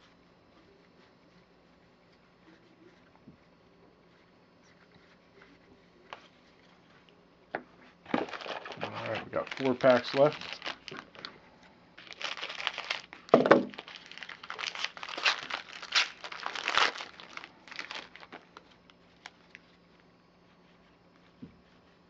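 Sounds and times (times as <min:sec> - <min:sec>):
foil wrapper tearing and crinkling: 0:08.1 - 0:11.3, 0:12.0 - 0:19.6.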